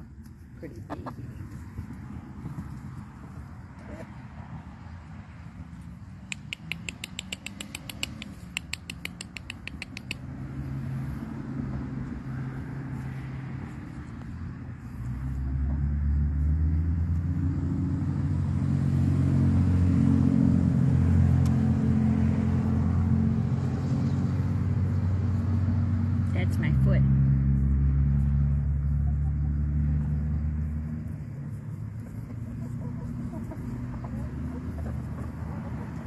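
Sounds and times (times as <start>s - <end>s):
engine running: 14.2s - 36.0s.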